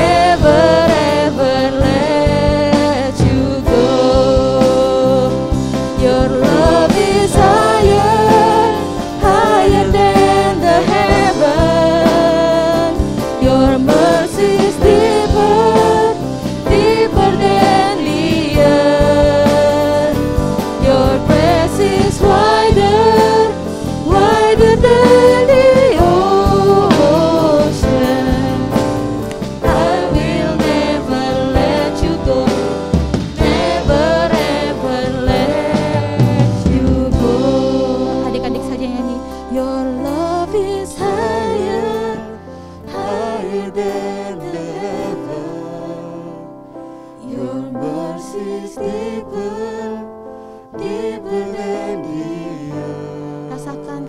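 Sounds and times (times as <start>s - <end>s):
electric bass: 0.0s - 42.5s
drum kit: 0.0s - 45.5s
keyboard: 0.0s - 54.0s
voices singing together: 0.0s - 54.0s.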